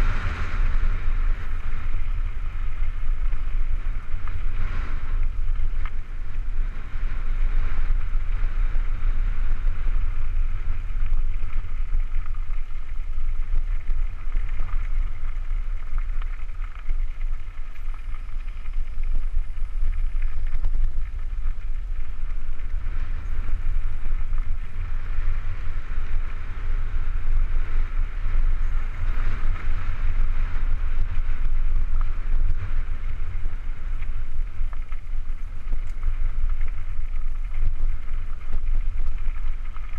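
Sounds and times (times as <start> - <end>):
low rumble: 0.0 - 39.9
wind buffeting microphone: 0.0 - 39.9
tyres rolling over gravel: 10.4 - 27.5, 30.9 - 39.9.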